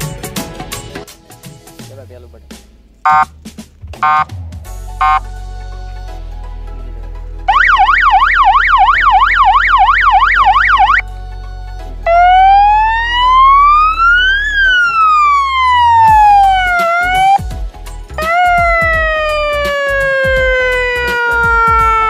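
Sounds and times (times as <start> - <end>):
police siren yelp: 3.1 - 3.3, 4.0 - 4.2, 7.5 - 11.0, 12.1 - 17.4, 18.2 - 22.0
police siren wail: 7.5 - 11.0, 12.1 - 17.4, 18.2 - 22.0.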